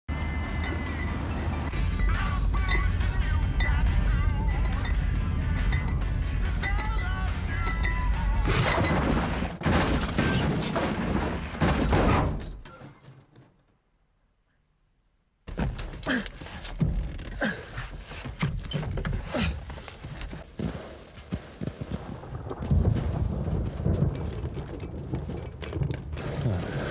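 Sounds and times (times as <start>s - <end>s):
knocks and splashes: 8.5s - 12.4s, 20.4s - 26.9s
car crash thuds: 8.6s - 12.6s
rain and water: 20.4s - 26.9s.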